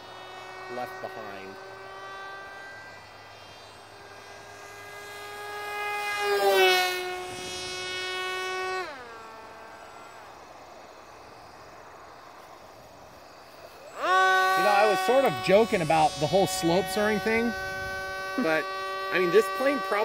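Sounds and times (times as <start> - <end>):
electric model plane motor whine: 0.0 - 20.0.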